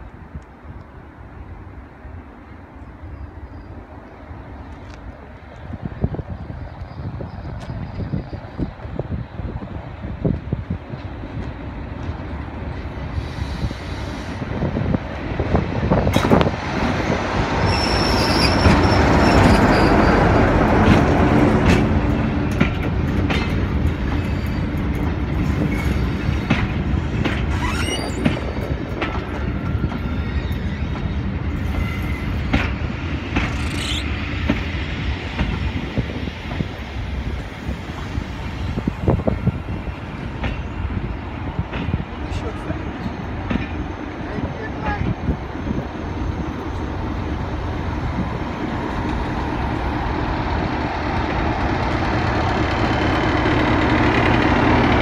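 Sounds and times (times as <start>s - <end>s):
diesel locomotive engine rumble: 0.0s - 55.0s
high wheel squeals: 17.6s - 20.2s, 27.5s - 28.6s, 29.8s - 32.5s
train wheels clicking over rail joints: 18.2s - 44.0s.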